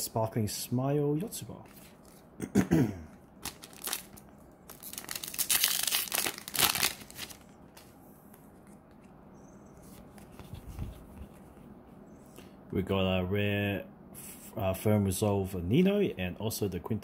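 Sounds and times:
foil pack tearing and crinkling: 3.4 - 7.5.

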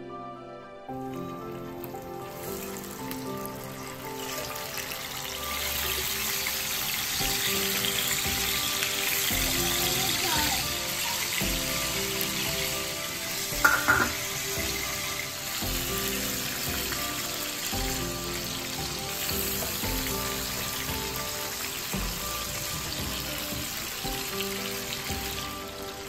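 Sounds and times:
fish sizzling in oil: 1.0 - 26.0
knock: 13.6 - 14.2.

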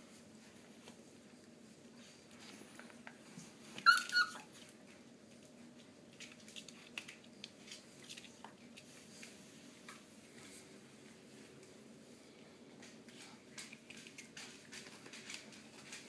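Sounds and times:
puppy yelping: 3.8 - 4.5.

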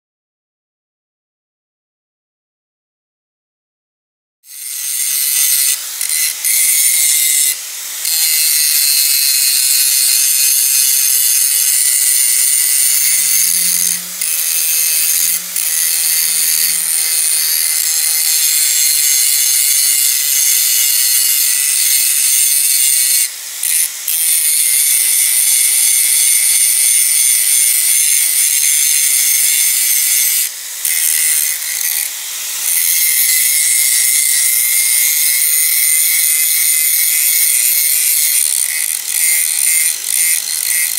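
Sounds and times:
angle grinder grinding metal: 4.4 - 40.9.

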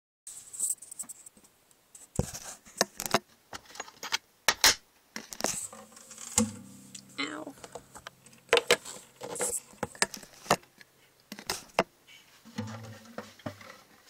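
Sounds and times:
phone handling scrapes and knocks: 7.6 - 10.6.

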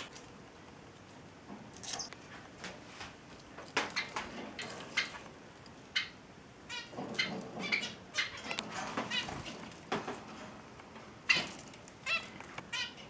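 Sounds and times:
finches chirping: 3.9 - 9.7.

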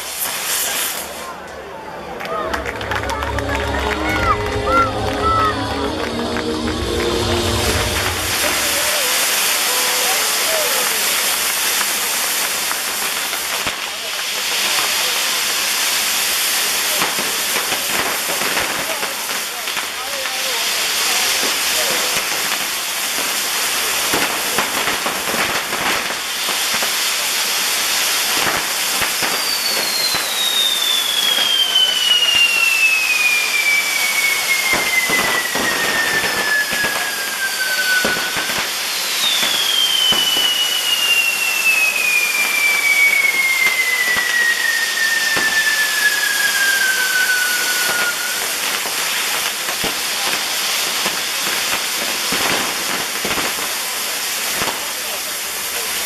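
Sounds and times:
descending firework whistles: 0.0 - 19.8, 20.4 - 56.0
fireworks crackling: 0.0 - 56.0
ground fireworks hissing: 0.0 - 56.0.

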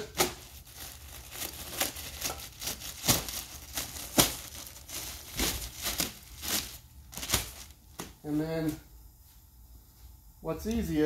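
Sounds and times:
plastic wrapping crinkling: 0.0 - 8.8.

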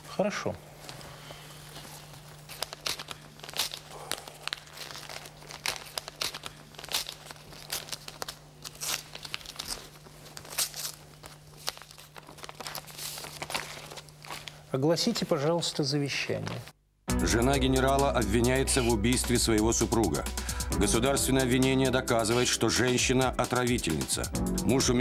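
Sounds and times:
paper rustling and crinkling: 0.8 - 15.3.

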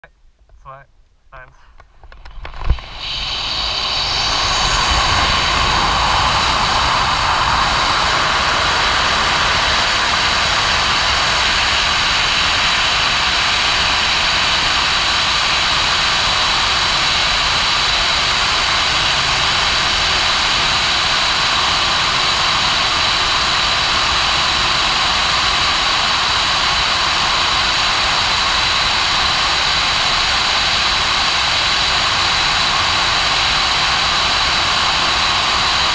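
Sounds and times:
wind rushing: 2.3 - 24.7.

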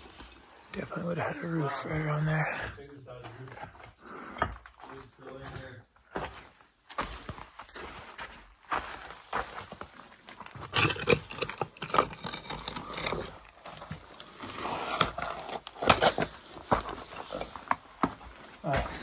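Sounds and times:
footsteps scuffing and scraping: 3.1 - 10.7, 13.7 - 19.0.

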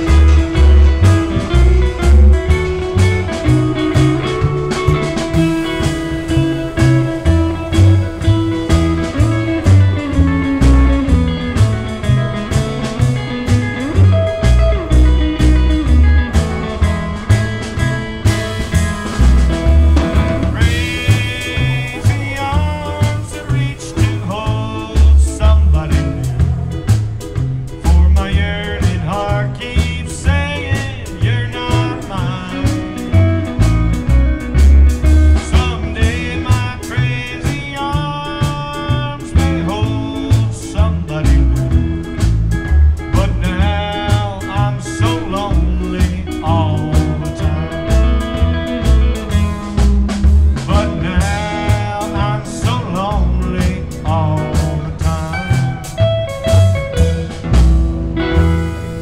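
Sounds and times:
rockabilly band playing: 0.0 - 59.0
person singing: 20.0 - 26.7, 27.8 - 33.6, 35.2 - 42.0, 43.1 - 49.8, 50.5 - 56.1.

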